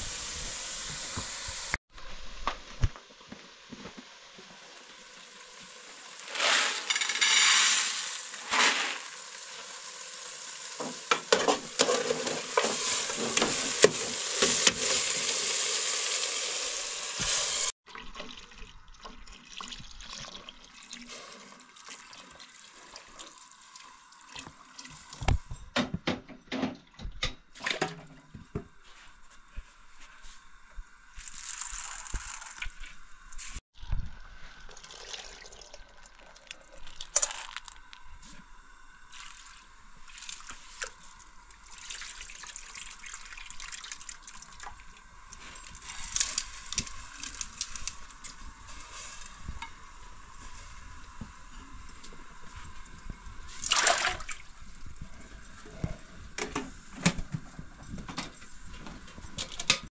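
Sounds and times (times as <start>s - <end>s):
water pouring into a pot: 4.7s - 25.2s, 31.2s - 32.9s, 33.8s - 38.1s, 39.1s - 51.2s, 52.0s - 55.1s.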